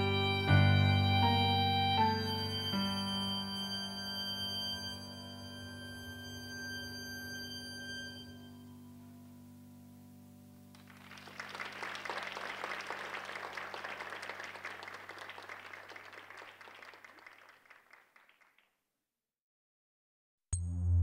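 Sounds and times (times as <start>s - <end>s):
low held music chord: 0.0s - 10.7s
audience applauding: 10.8s - 18.7s.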